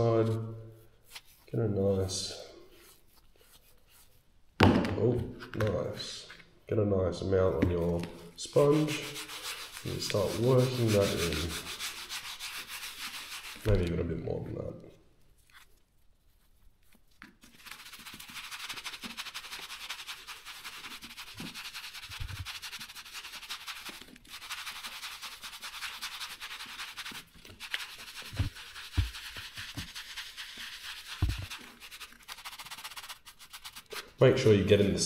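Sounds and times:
sponge scuffing leather: 0:08.8 - 0:12.1, 0:27.7 - 0:32.1.

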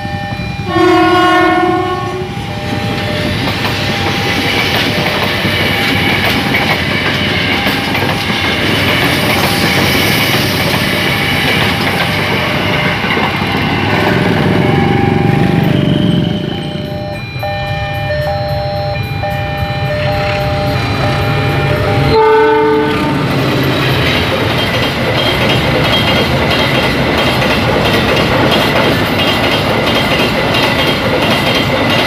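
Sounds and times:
train horn: 0:00.0 - 0:03.1, 0:22.0 - 0:23.5
train passing with rail noise: 0:00.0 - 0:32.0
wheels clacking over rail joints: 0:02.8 - 0:16.2, 0:20.2 - 0:32.0.

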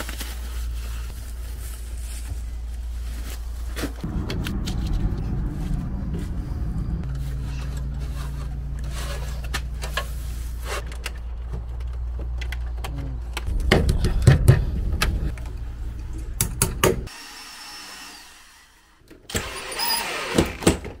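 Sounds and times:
low rumble: 0:02.4 - 0:08.9, 0:11.4 - 0:17.1.

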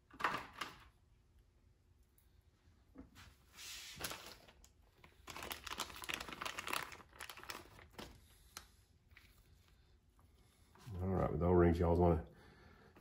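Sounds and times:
packaging crinkling: 0:04.0 - 0:09.4.

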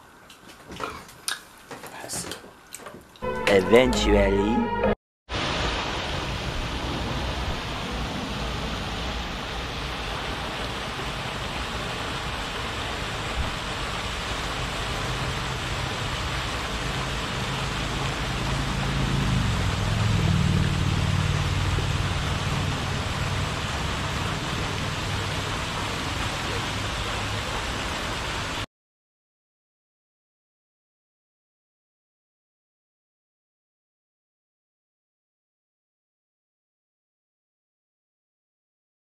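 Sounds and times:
fountain spray falling on water: 0:05.3 - 0:28.6
low engine hum: 0:06.6 - 0:27.8.

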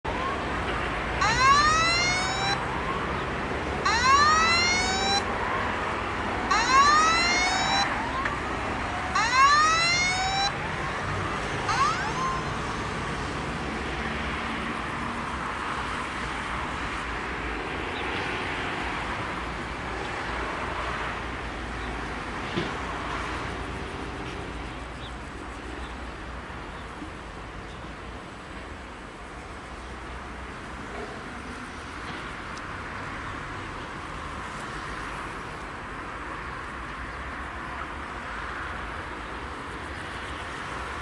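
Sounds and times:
steady background noise: 0:00.1 - 0:41.0
level crossing electronic wail: 0:01.2 - 0:02.6, 0:03.8 - 0:05.3, 0:06.5 - 0:08.4, 0:09.0 - 0:10.6, 0:11.6 - 0:12.8.

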